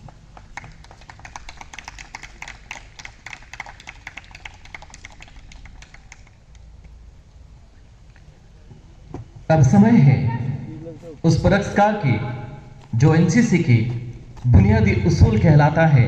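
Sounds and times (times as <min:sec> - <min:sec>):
audience clapping: 0:00.0 - 0:06.6.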